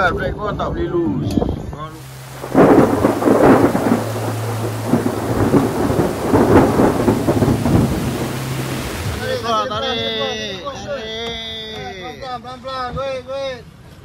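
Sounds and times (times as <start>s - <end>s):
steady low hum: 2.0s - 9.5s
heavy rain pelting down: 2.0s - 9.6s.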